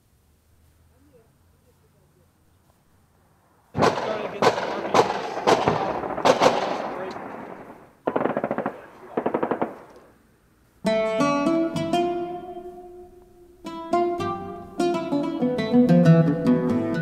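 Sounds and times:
plucked guitar chords: 10.8s - 17.0s.

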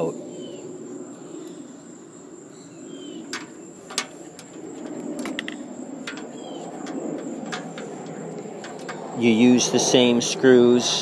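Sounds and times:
birds chirping: 0.0s - 10.7s
metallic clicks and taps: 3.3s - 9.0s.

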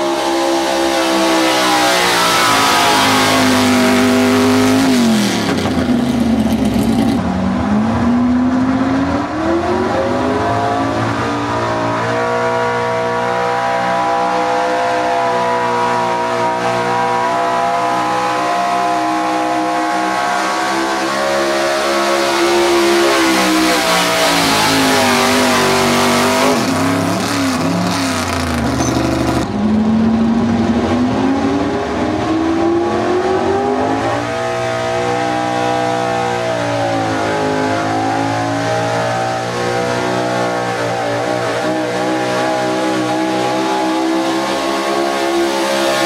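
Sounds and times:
truck engine revving under load: 0.0s - 13.5s, 15.4s - 46.0s.

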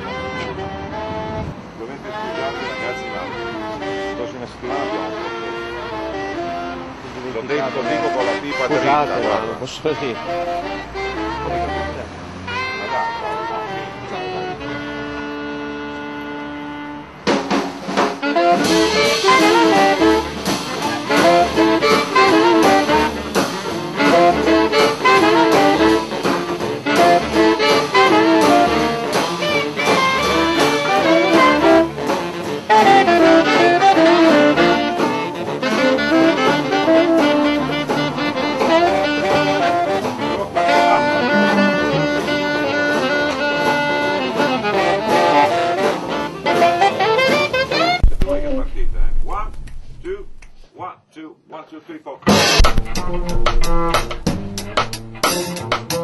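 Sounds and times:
jazz with saxophone and brass: 0.0s - 50.3s, 52.3s - 56.0s
pulsing bass line: 41.1s - 42.6s, 48.0s - 50.4s, 52.6s - 55.4s.

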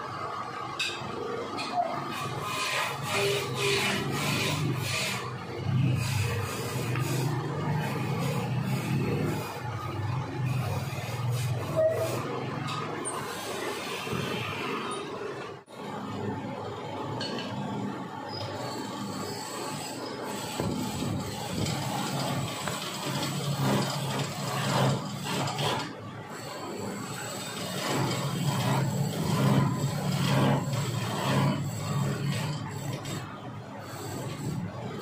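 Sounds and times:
chisel scraping spinning wood: 2.1s - 14.2s, 18.7s - 26.0s, 26.9s - 33.4s
wood lathe humming: 2.4s - 9.6s.

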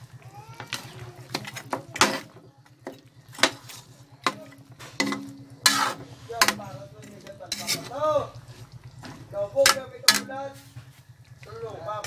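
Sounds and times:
low steady hum: 0.0s - 12.0s
metal spatula scraping a wok: 1.3s - 2.4s, 3.4s - 8.7s, 9.6s - 11.0s.

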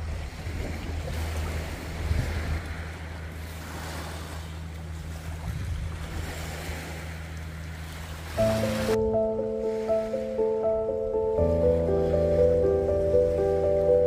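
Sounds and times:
wind buffeting microphone: 0.0s - 4.2s, 4.9s - 7.0s
steady low hum: 1.2s - 14.0s.

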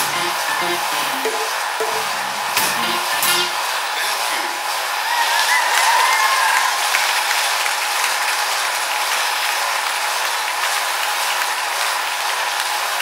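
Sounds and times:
bike trainer whirring: 0.0s - 3.9s.

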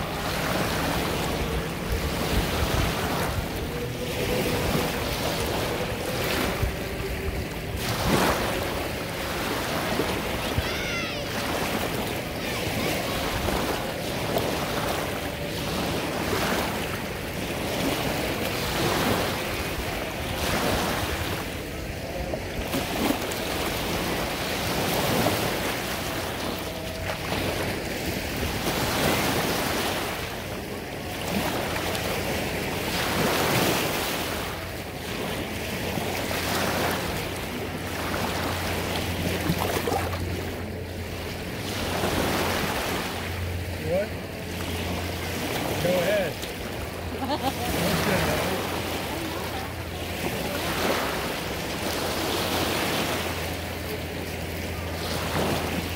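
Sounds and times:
wind buffeting microphone: 0.0s - 10.6s
small waves breaking on shore: 0.0s - 55.9s.

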